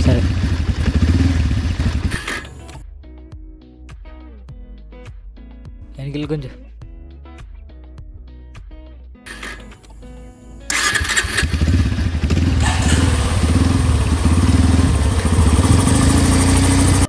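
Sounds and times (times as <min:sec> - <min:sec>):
motorcycle engine running: 0:00.0 - 0:02.8, 0:10.7 - 0:17.0.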